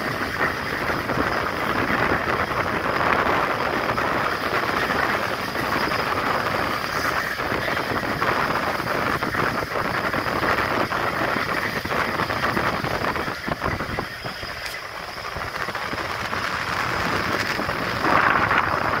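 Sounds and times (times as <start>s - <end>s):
train rumble and clatter: 0.0s - 19.0s
wind buffeting microphone: 0.0s - 19.0s.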